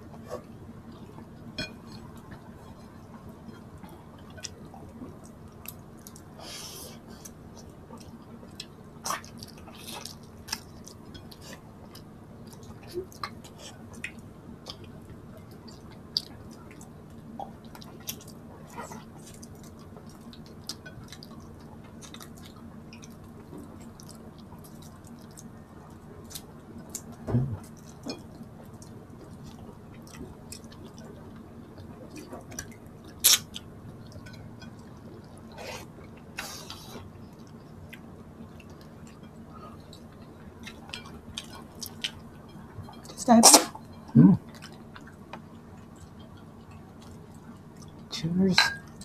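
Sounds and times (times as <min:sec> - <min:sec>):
low steady hum: 0:00.0 - 0:49.0
person chewing: 0:26.3 - 0:45.2.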